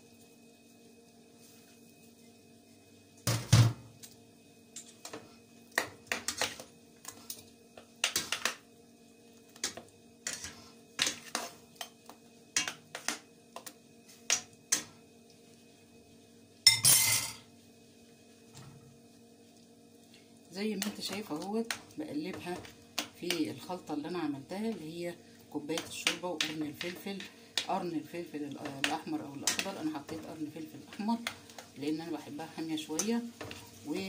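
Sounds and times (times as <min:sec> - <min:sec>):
metal spoon scraping a pot: 0:10.3 - 0:11.6.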